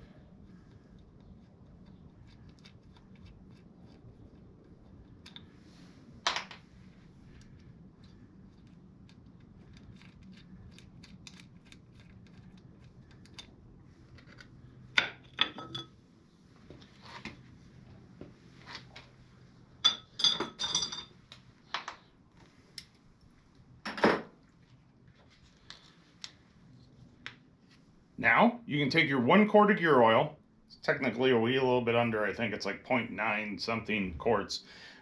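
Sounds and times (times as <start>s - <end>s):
metal clinks: 19.8s - 21.1s.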